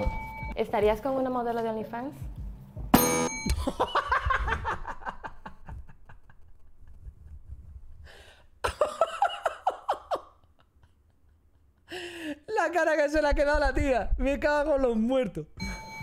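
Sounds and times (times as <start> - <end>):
desk service bell ringing: 3.0 - 3.6, 15.6 - 16.0
man laughing: 3.5 - 7.4, 8.6 - 12.0
laughter in bursts: 3.5 - 7.5, 8.6 - 11.9.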